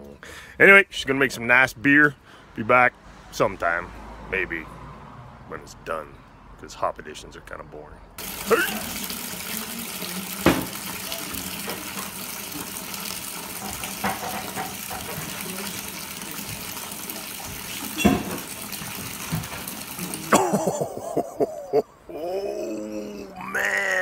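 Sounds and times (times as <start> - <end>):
man speaking: 0.0 - 4.7, 5.5 - 8.9
liquid pouring into plastic bucket: 8.2 - 20.6.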